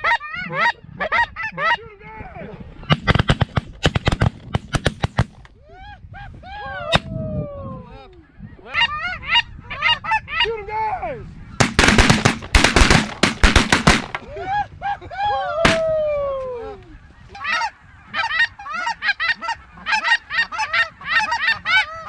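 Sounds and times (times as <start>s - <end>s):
shotgun volley: 11.6s - 14.3s
snow goose honks: 17.1s - 22.0s.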